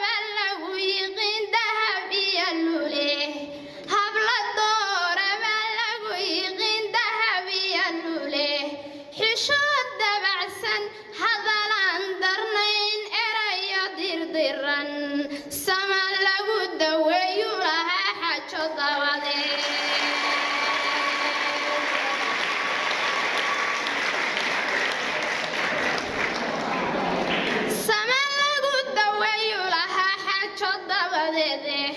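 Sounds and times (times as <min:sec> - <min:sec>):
girl chanting into a microphone: 0:00.0 - 0:19.6, 0:27.7 - 0:31.9
applause: 0:19.3 - 0:27.9.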